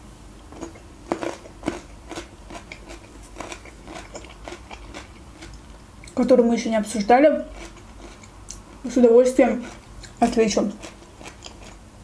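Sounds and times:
chewing crunchy gherkin: 0:00.5 - 0:06.2, 0:07.5 - 0:08.8, 0:09.6 - 0:11.9.

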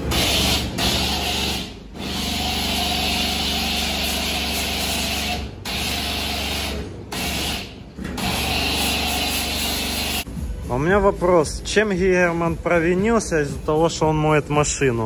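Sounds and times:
pump motor hum: 0:00.0 - 0:10.2.

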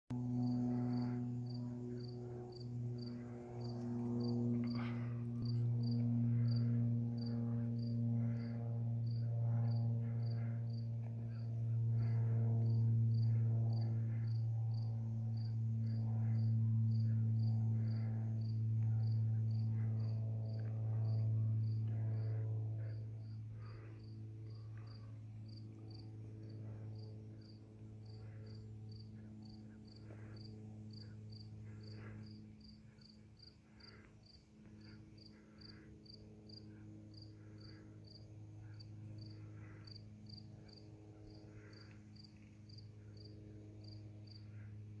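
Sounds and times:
steady low hum: 0:00.1 - 0:45.0
insect chirping: 0:00.4 - 0:10.4, 0:27.4 - 0:44.4.

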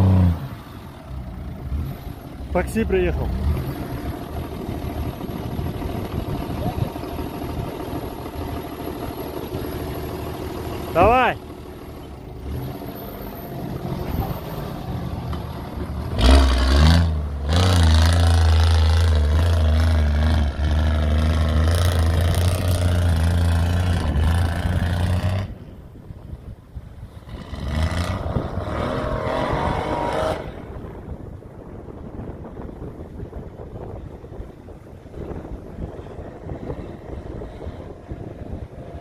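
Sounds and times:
engine revving: 0:00.0 - 0:00.6, 0:12.4 - 0:14.8, 0:16.0 - 0:25.6, 0:27.2 - 0:30.9.

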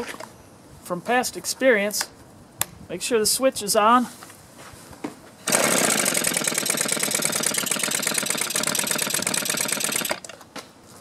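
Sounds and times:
leaf blower engine running: 0:05.5 - 0:10.3.

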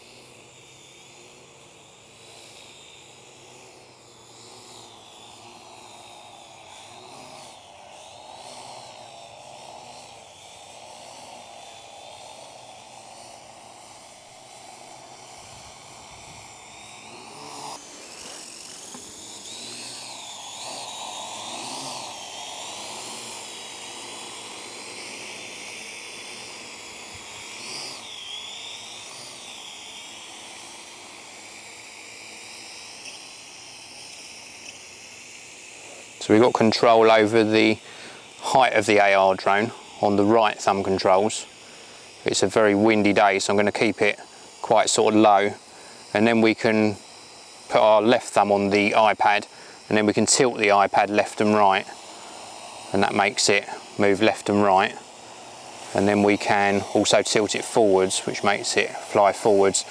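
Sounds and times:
drone motors whining: 0:00.0 - 0:59.9.

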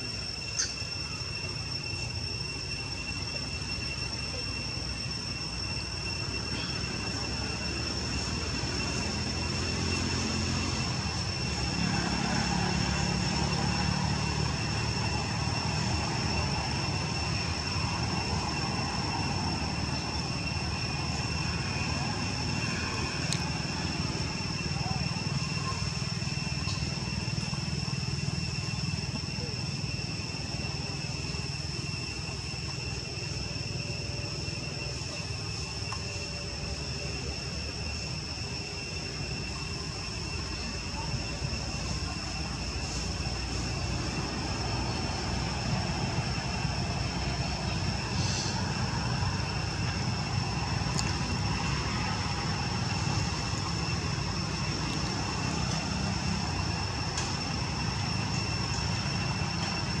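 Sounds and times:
high-pitched insect drone: 0:00.0 - 1:00.0
high-pitched whine: 0:00.0 - 1:00.0
low continuous rumble: 0:00.0 - 1:00.0
faint clicks: 0:50.9 - 0:51.2.

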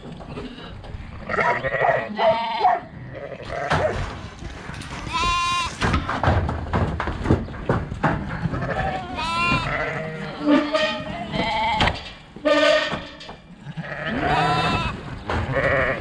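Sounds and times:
lambs bleating: 0:01.3 - 0:03.8, 0:05.1 - 0:05.8, 0:08.6 - 0:11.9, 0:13.6 - 0:16.0
knocks and clatter on metal: 0:03.5 - 0:10.1, 0:10.7 - 0:16.0.

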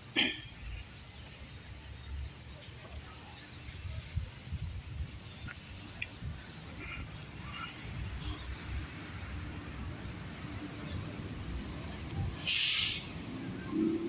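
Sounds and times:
short loud hiss: 0:12.4 - 0:13.1.

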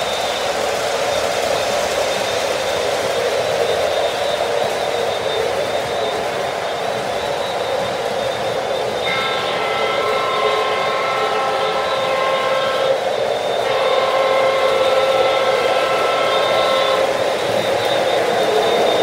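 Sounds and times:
model train wheels and motors: 0:00.0 - 0:19.0
train chord horn: 0:09.0 - 0:17.2.

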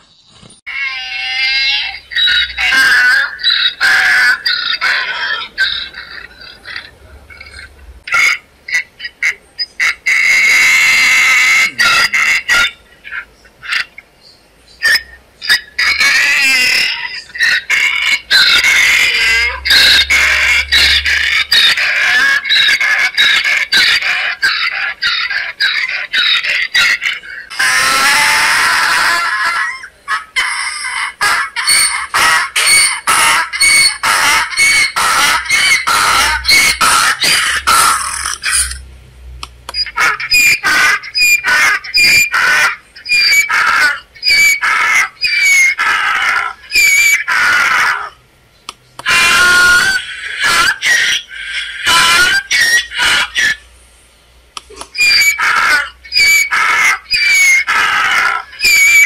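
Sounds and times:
donkey braying: 0:10.0 - 0:12.8, 0:14.8 - 0:38.8, 0:39.7 - 0:48.2, 0:49.0 - 0:53.6, 0:54.6 - 0:59.0.

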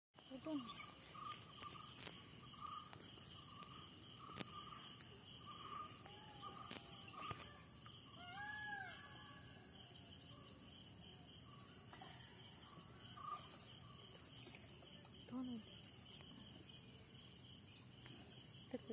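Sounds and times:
birds chirping: 0:00.2 - 0:18.9
insects droning: 0:00.2 - 0:18.9.

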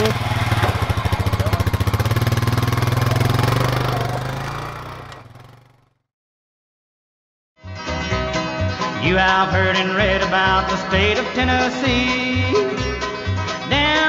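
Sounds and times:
atv engine idling: 0:00.0 - 0:05.9.

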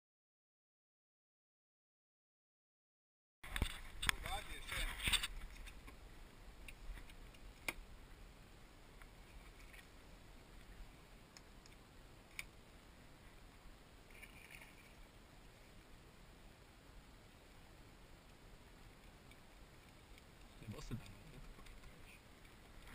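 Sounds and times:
faint sharp clicks: 0:11.3 - 0:12.6.

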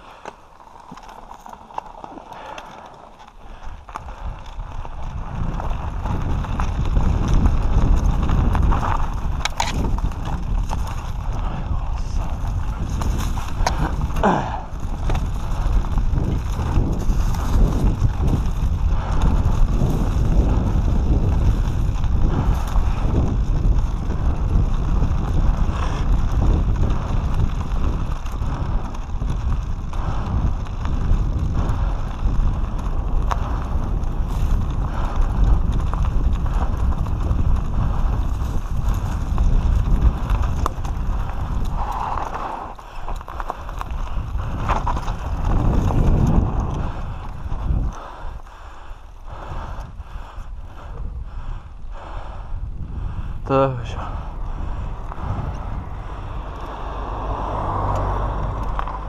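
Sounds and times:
bike knocking and rattling: 0:00.0 - 0:51.6
tyres on dirt: 0:00.0 - 0:51.8, 0:52.4 - 0:59.0
wind buffeting microphone: 0:01.0 - 0:59.0.

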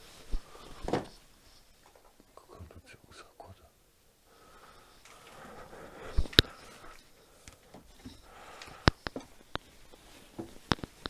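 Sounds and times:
person sniffing and breathing: 0:04.3 - 0:09.2.

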